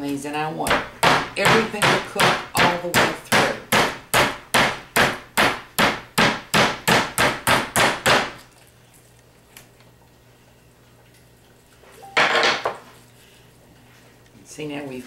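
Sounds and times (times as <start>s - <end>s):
meat mallet pounding on glass board: 0.6s - 8.4s.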